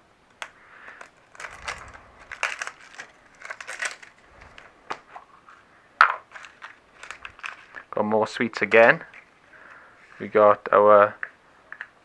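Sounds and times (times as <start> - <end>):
plastic wrapper crinkling: 0.4 - 5.3, 6.2 - 8.0.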